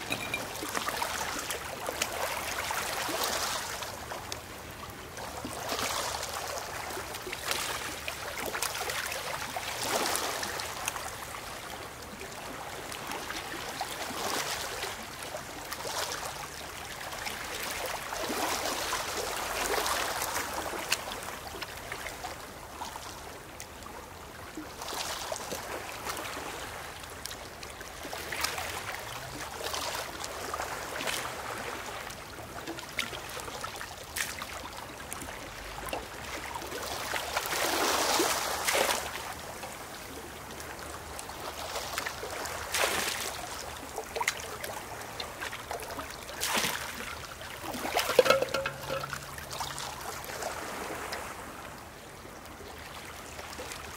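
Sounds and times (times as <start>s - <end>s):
waves washing over pebbles: 47.8s - 49.8s.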